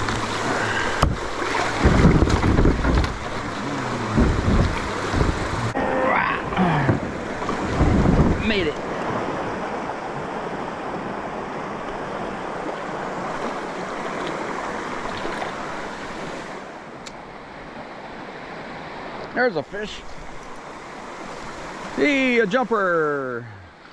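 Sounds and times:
low knocks and splashes: 0.0s - 11.1s, 11.8s - 16.5s
water rushing through river riffle: 0.0s - 23.9s.

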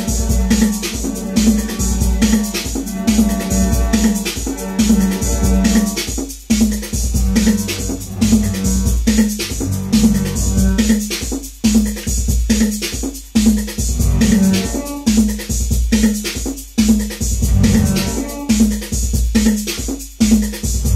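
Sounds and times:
synthesizer played live: 0.0s - 6.1s, 7.0s - 10.9s, 14.0s - 15.1s, 17.4s - 18.7s
drum machine beat with kick: 0.0s - 20.9s.

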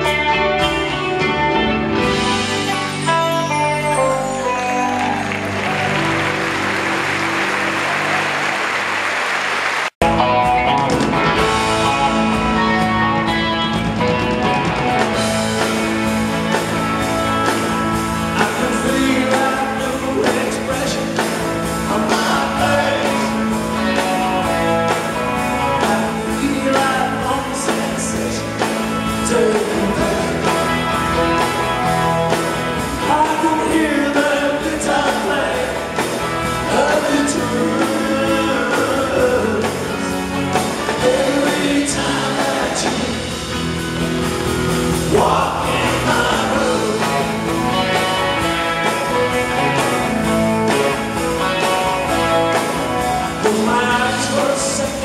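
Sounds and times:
electric twelve-string guitar: 0.0s - 8.5s, 10.0s - 55.0s
live rock band playing: 0.0s - 55.0s
person singing: 18.2s - 24.6s, 25.2s - 43.7s, 45.0s - 55.0s.

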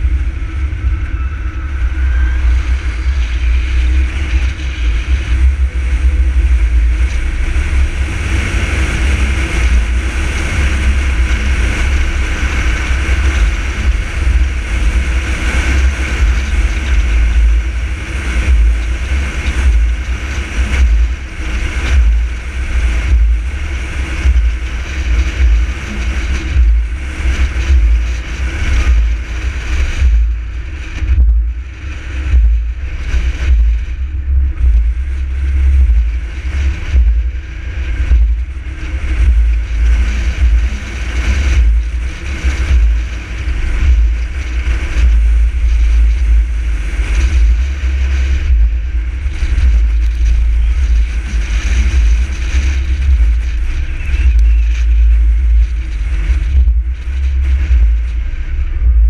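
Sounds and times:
wind and road noise rumble: 0.0s - 59.0s.

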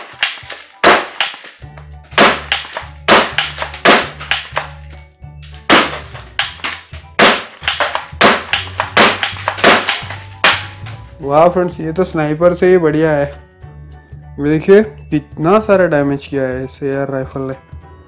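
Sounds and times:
toy rifle shots: 0.0s - 1.6s, 2.2s - 4.8s, 5.7s - 10.8s.

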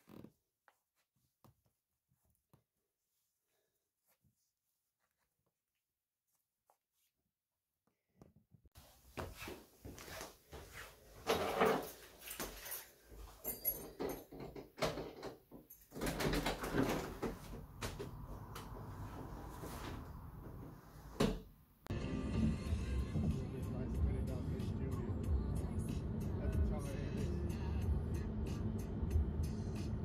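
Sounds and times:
front door opening: 13.4s - 21.5s
knocks and clatter in hallway: 13.8s - 18.8s.

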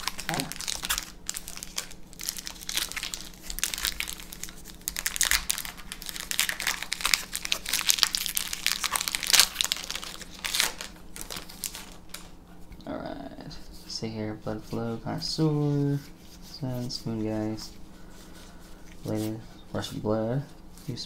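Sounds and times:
foil wrapper crinkling: 0.0s - 12.3s.

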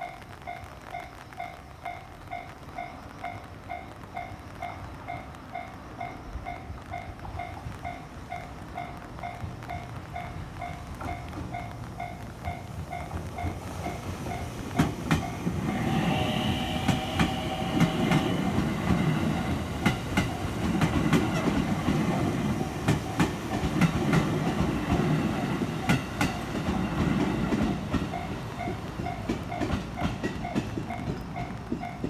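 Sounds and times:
electric train rumble: 1.8s - 32.0s
wheels clacking over rail joints: 2.8s - 32.0s
held high tone: 15.3s - 19.7s.

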